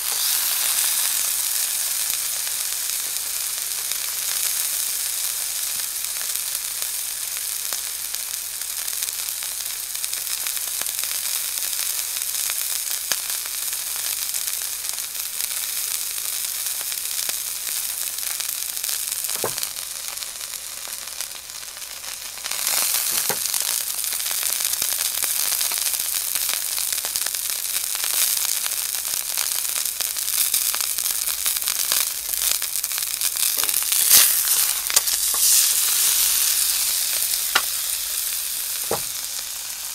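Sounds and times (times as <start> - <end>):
steak sizzling in hot oil: 0.0 - 39.9
oil popping: 32.2 - 39.9.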